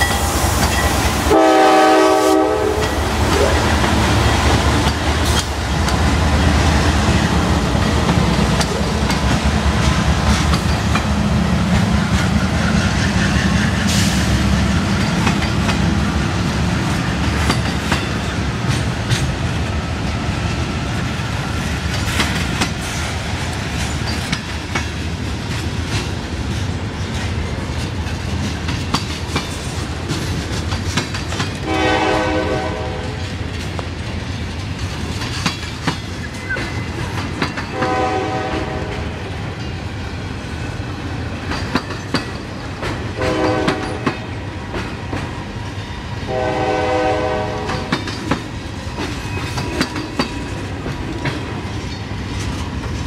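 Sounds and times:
diesel locomotive rumble: 0.0 - 53.0
train wheels clicking over rail joints: 0.0 - 53.0
train horn blast: 1.2 - 3.5, 31.6 - 33.3, 37.7 - 39.2, 43.2 - 44.2, 46.3 - 48.0.

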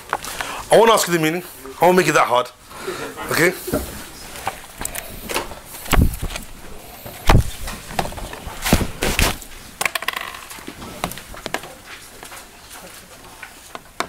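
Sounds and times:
dull thumps and knocks: 5.8 - 6.5, 7.1 - 9.4.

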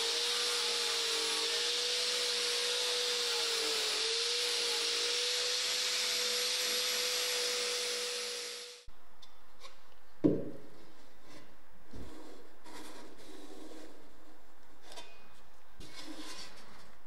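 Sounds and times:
abrasive wheel on sheet steel: 0.0 - 8.9, 10.9 - 17.0
single knock: 10.2 - 10.6.

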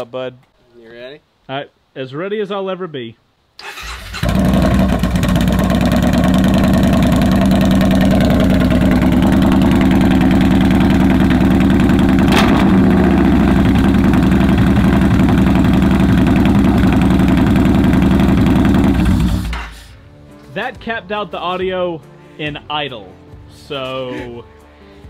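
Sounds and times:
sharp exhaust crack: 3.6 - 20.0
motorcycle engine idling loudly: 4.2 - 19.5.

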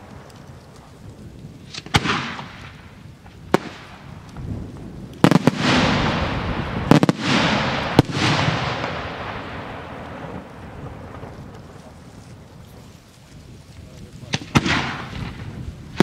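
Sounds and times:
firework shells bursting: 1.6 - 11.8, 14.3 - 16.0
rolling echo of bangs: 1.7 - 2.8, 5.3 - 11.3, 14.3 - 16.0.

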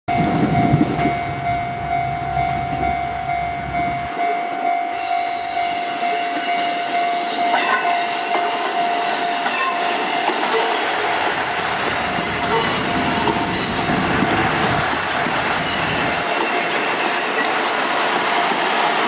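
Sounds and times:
level crossing alarm: 0.1 - 11.0
diesel railcar rumble: 0.1 - 19.0
train wheel squeal and hiss: 4.9 - 19.0
train wheel clicks: 12.5 - 19.0.

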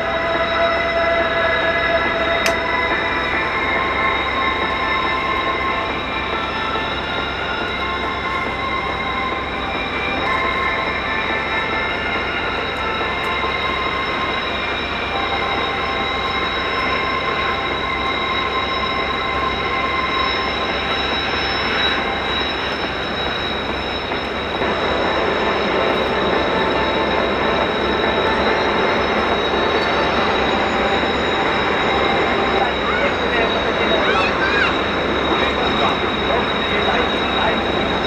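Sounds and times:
jet engines whining: 0.0 - 38.0.

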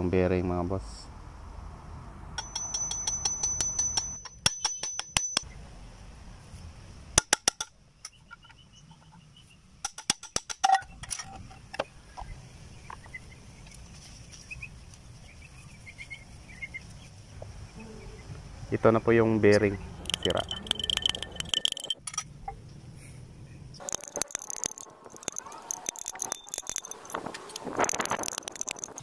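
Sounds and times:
metallic clicks and clinks: 2.4 - 5.5, 20.0 - 22.3, 23.8 - 29.0.

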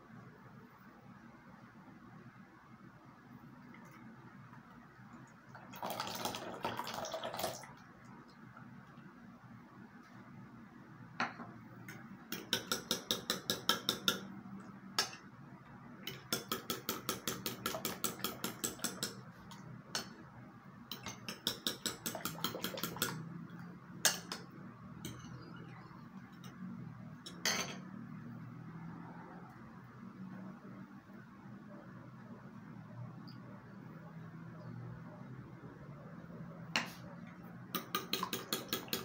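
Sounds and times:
metal spoon clinking in ceramic bowl: 24.1 - 25.4, 27.3 - 27.9.

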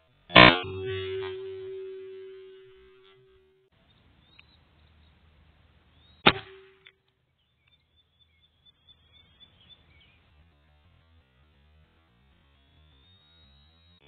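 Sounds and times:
air rifle shot: 6.3 - 6.7.

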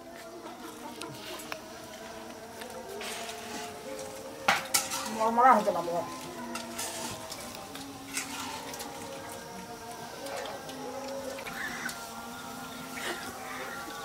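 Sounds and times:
metal utensil clattering on pan: 4.5 - 5.3.

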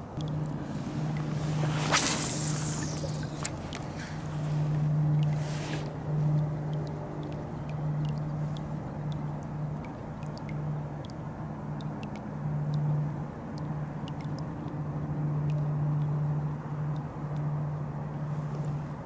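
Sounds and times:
rushing background noise: 0.0 - 15.9
steady low hum: 0.0 - 19.0
faint high ticks: 4.7 - 19.0.

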